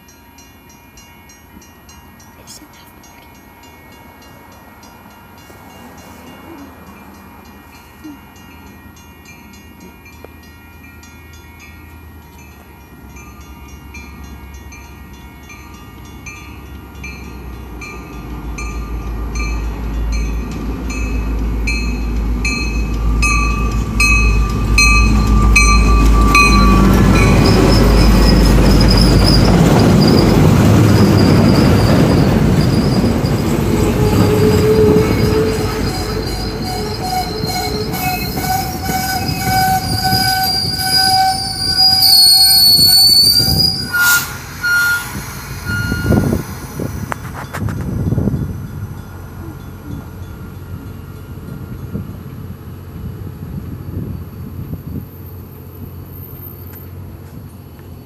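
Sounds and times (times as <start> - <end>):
train rumbling past: 0.0 - 58.0
high squeal: 24.3 - 47.6.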